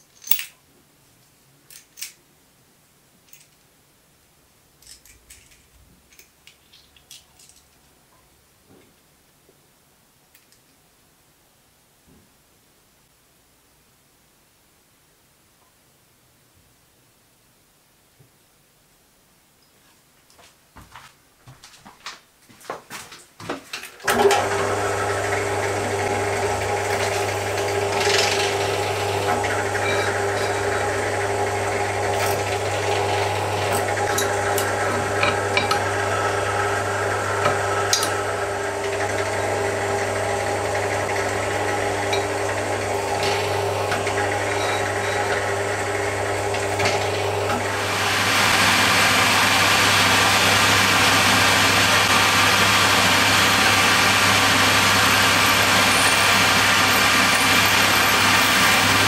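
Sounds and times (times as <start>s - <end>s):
drill press motor hum: 24.0s - 59.0s
hissy drilling machine: 24.0s - 59.0s.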